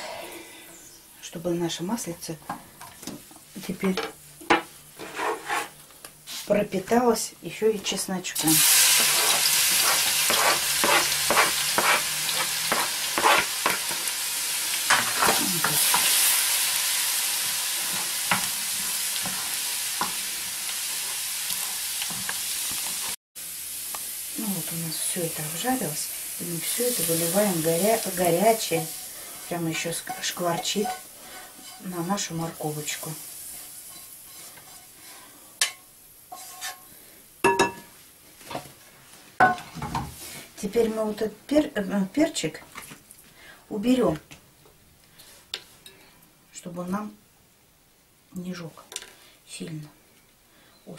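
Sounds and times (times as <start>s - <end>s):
spatula scraping a pan: 5.0s - 5.8s, 8.7s - 14.1s, 28.5s - 32.1s, 33.4s - 36.9s
garlic sizzling in oil: 8.4s - 37.0s.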